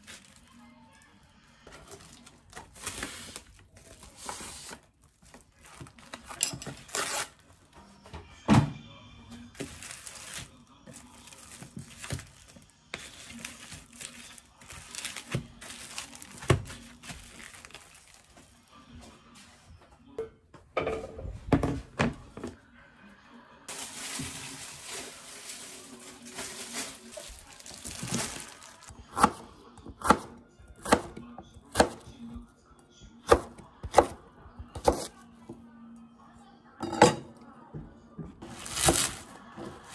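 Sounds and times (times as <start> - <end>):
onion skin rustling: 9.6 - 18.5, 23.7 - 29.3, 38.4 - 39.9
cling film crinkling: 11.2 - 18.5, 23.7 - 28.9, 38.5 - 39.9.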